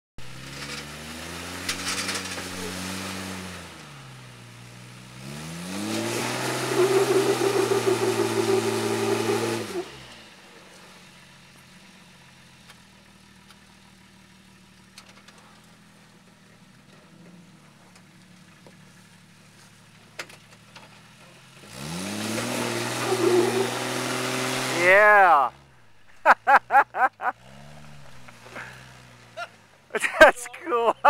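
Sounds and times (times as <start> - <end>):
car engine revving under load: 0.2 - 11.1, 20.1 - 29.9.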